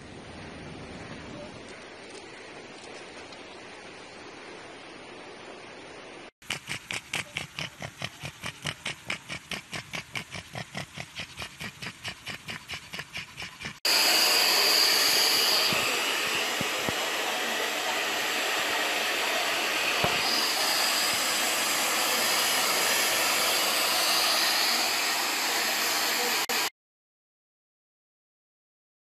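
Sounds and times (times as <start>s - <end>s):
electric blower hissing: 13.4s - 26.7s.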